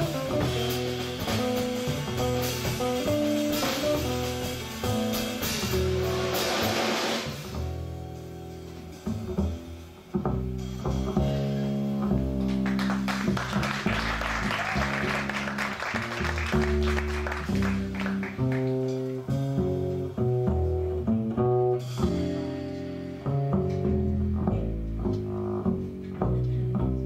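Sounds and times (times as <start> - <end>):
drum cymbals: 0.0 - 12.0
plucked upright bass: 0.0 - 27.0.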